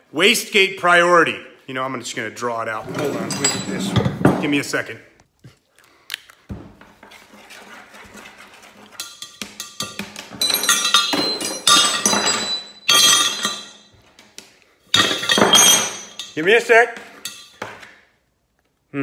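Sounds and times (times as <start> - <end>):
hard objects clinking and clattering: 8.9 - 14.1, 14.9 - 17.9.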